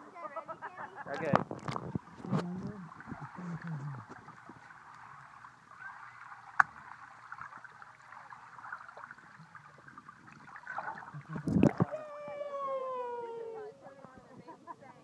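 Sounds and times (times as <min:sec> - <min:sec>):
water splash and slosh: 0:01.3 - 0:12.1.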